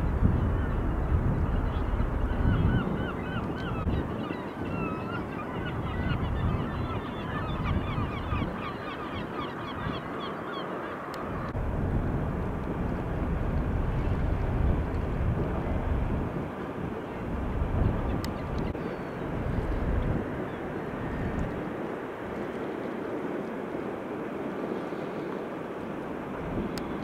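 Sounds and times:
steady low rumble: 11.5s - 16.4s.

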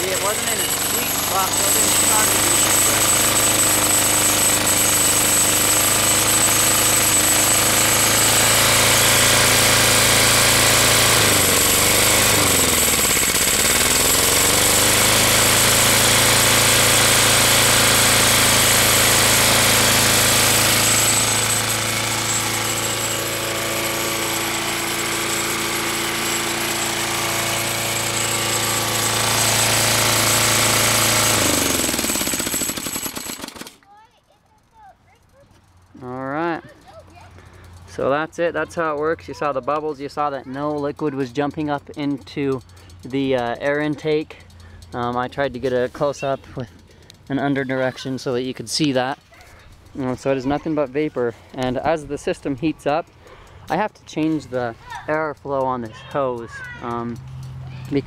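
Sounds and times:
lawn mower engine running: 0.0s - 33.8s, 40.8s - 58.0s.

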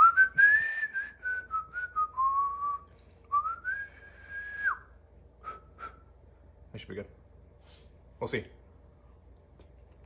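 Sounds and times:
man blowing breathy whistle: 0.0s - 6.2s.

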